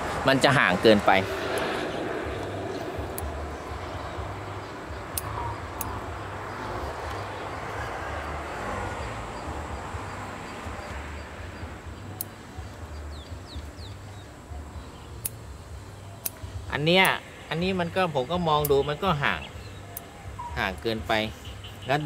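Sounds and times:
distant engine rumble: 0:00.0 - 0:22.0
sharp clicks: 0:05.1 - 0:06.0
faint bird chirps: 0:18.6 - 0:22.0.

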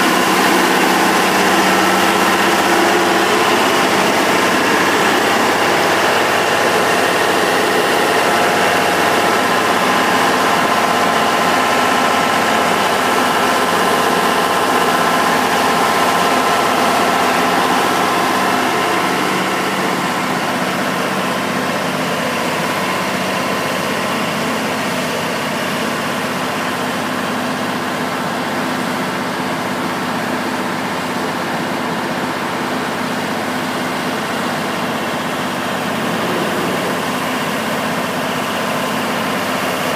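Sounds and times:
diesel engine running: 0:00.0 - 0:39.9
machine whine: 0:35.1 - 0:39.5.

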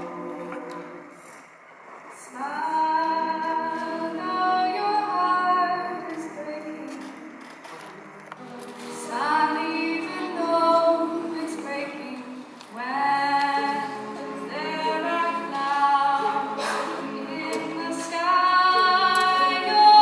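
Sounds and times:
vocal group sustained chords: 0:00.0 - 0:01.3, 0:13.0 - 0:20.0
woman singing lead: 0:02.2 - 0:07.4, 0:08.4 - 0:20.0.

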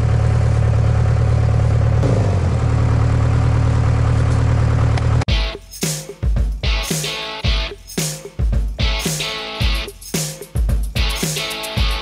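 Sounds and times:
backhoe engine running: 0:00.0 - 0:05.3
guitar and drum music: 0:05.3 - 0:12.0.

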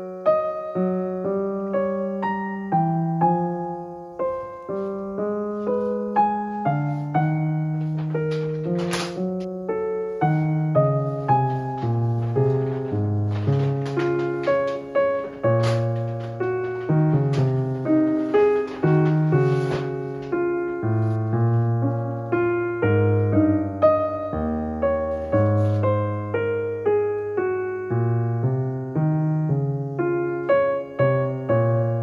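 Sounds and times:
gentle piano music: 0:00.0 - 0:32.0.

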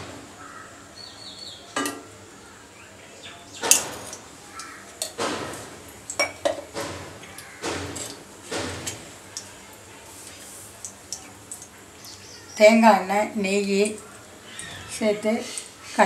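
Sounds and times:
utensils and pots clattering: 0:01.8 - 0:02.1, 0:03.6 - 0:09.2.

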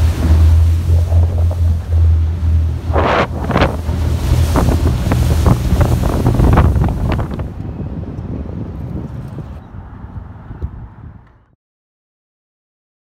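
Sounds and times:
water slapping hull: 0:00.0 - 0:07.8
water rushing against hull: 0:00.0 - 0:09.6
wind buffeting microphone: 0:00.0 - 0:11.5.

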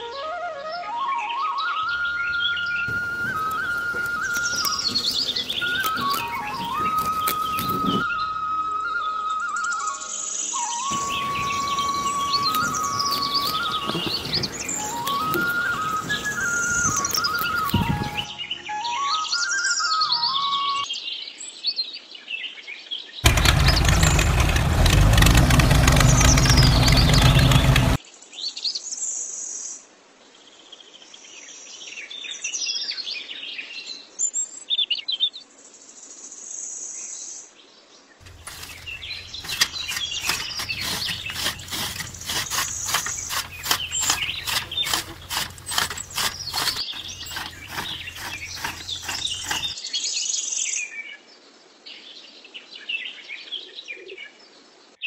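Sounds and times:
birds chirping: 0:02.8 - 0:08.1, 0:10.8 - 0:19.0, 0:23.2 - 0:28.0, 0:38.2 - 0:49.8
chaff cutter chopping grass: 0:02.9 - 0:08.0, 0:10.9 - 0:18.3, 0:23.2 - 0:28.0, 0:38.2 - 0:49.8.

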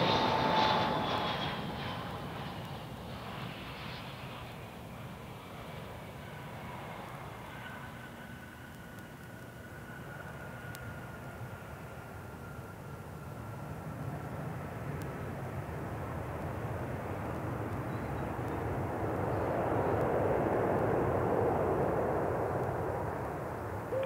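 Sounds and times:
jet engine rush: 0:00.0 - 0:11.0.

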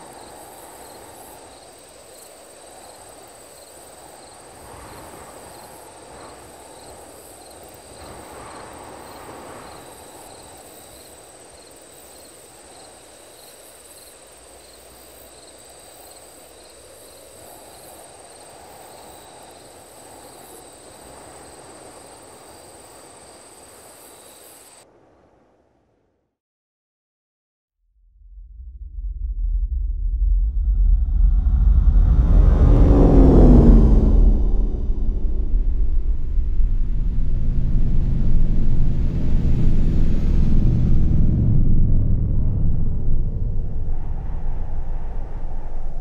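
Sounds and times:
hissing rushing noise: 0:31.4 - 0:46.0.

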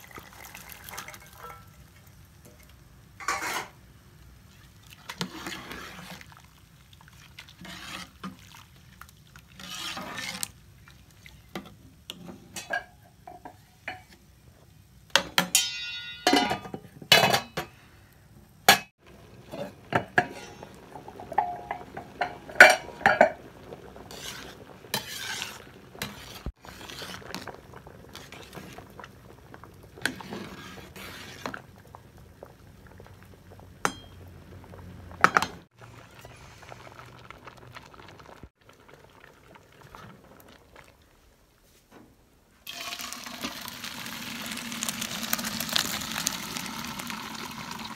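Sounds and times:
metal ladle scraping a pot: 0:03.2 - 0:03.8, 0:05.1 - 0:06.4, 0:07.4 - 0:08.7, 0:09.4 - 0:10.6, 0:19.5 - 0:23.4, 0:24.0 - 0:29.0, 0:30.0 - 0:31.7
metal pot lid clanking: 0:19.6 - 0:23.4.

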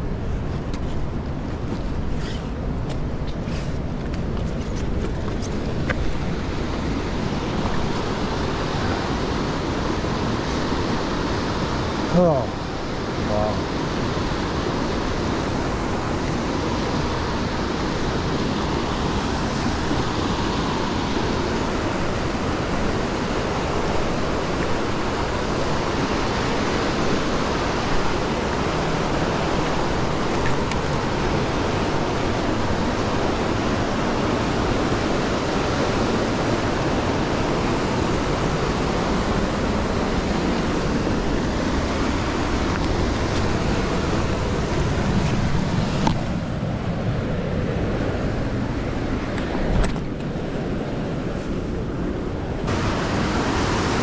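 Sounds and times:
stream rushing: 0:00.0 - 0:54.0.

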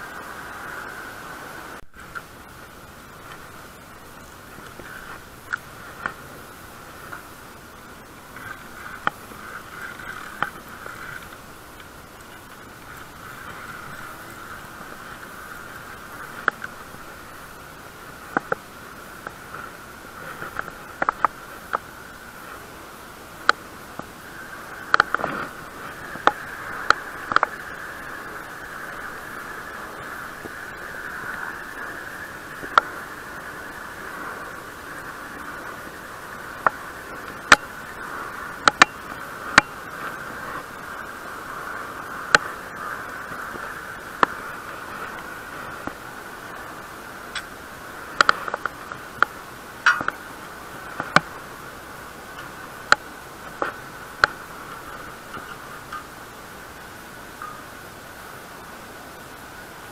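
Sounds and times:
steady hiss: 0:00.0 - 0:59.9.

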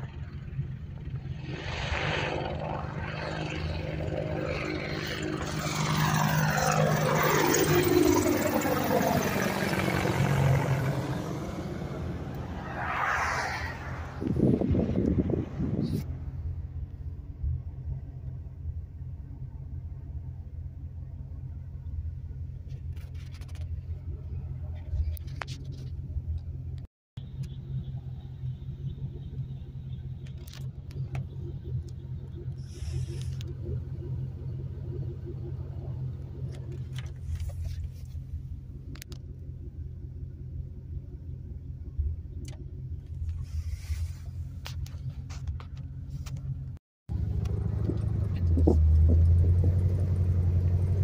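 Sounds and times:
helicopter flying overhead: 0:00.0 - 0:15.8.

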